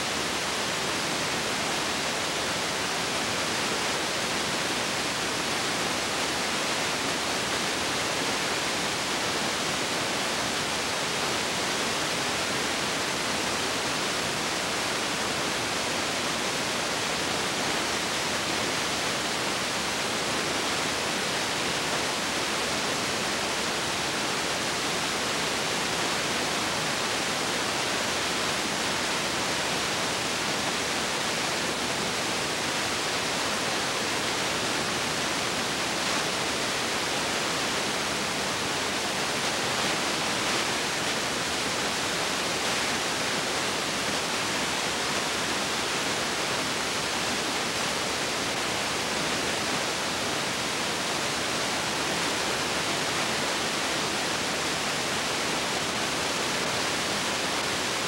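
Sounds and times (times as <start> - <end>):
steady hiss: 0.0 - 58.0.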